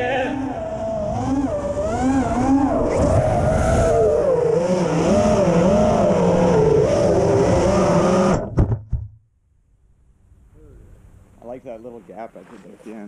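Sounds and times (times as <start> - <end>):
drone motors whining: 0.0 - 8.6
wind noise: 0.6 - 8.8.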